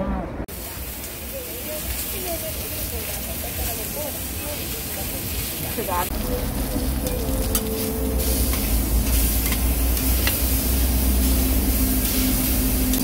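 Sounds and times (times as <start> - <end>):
meat sizzling on a griddle: 0.5 - 13.0
low steady hum and rumble: 6.0 - 13.0
metal spatula clicks and scrapes: 8.5 - 10.5.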